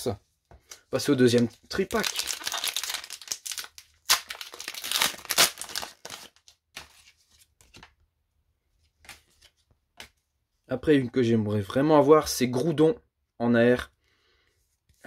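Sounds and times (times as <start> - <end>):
wrapper crinkling and tearing: 1.3 - 7.1.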